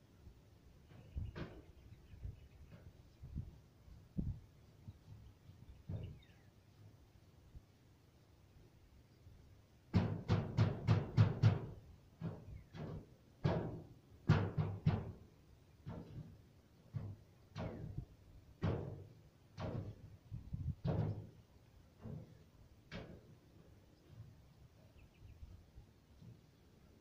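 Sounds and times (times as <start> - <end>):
hollow resonant knocks: 5.7 - 6.4, 9.9 - 24.3.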